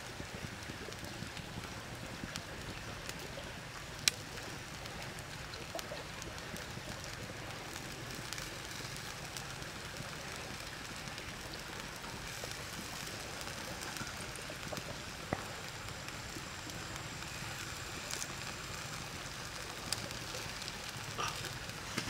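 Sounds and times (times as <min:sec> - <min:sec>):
fire crackling: 0:00.0 - 0:22.0
shrimp sizzling on stone: 0:00.0 - 0:22.0.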